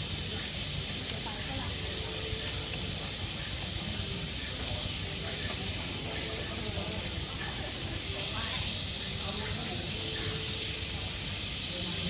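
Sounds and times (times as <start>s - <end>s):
beef and onions sizzling: 0.0s - 12.0s.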